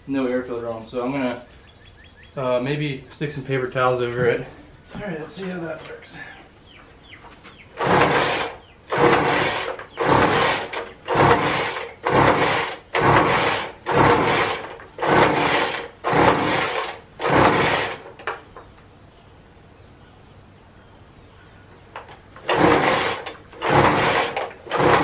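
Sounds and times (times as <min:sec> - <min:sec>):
recoil starter cord pulls: 0:07.8 - 0:18.4, 0:22.0 - 0:25.0.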